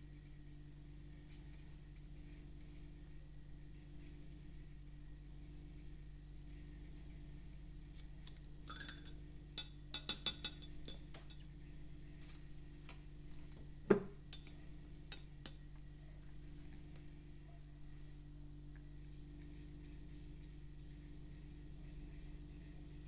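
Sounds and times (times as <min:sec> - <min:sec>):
paintbrush clinking against cup: 0:08.7 - 0:11.5, 0:14.4 - 0:15.6.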